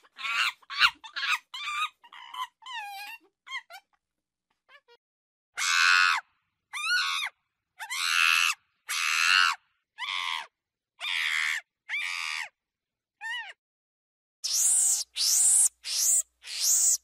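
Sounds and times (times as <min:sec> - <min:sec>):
monkey calling: 0:14.4 - 0:17.0.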